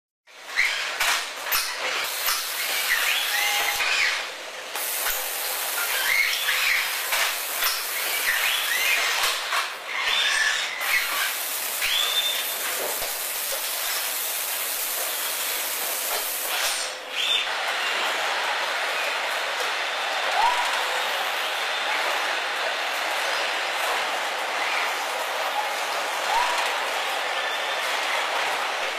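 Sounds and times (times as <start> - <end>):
loud machine hiss: 2.0 - 9.5, 10.2 - 17.1
robot whining squeals: 2.8 - 4.2, 9.9 - 11.3.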